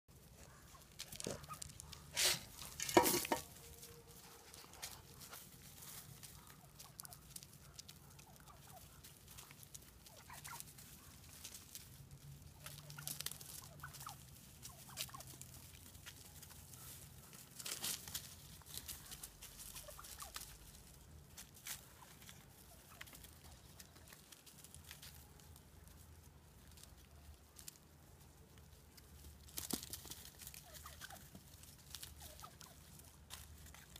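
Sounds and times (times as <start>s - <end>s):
turkey calls: 0.1s - 33.9s
turkeys pecking in dry leaves: 0.1s - 33.9s.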